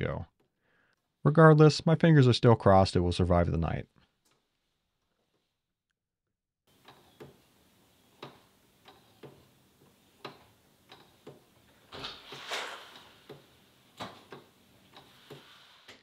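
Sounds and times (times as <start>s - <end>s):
wooden clock ticking: 8.2s - 11.5s, 13.3s - 15.5s.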